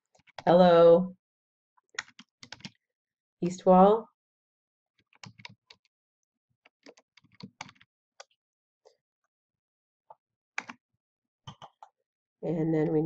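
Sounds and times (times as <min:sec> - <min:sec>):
keyboard typing: 0:02.0 - 0:02.8, 0:05.1 - 0:05.8, 0:06.8 - 0:07.8, 0:11.5 - 0:11.9.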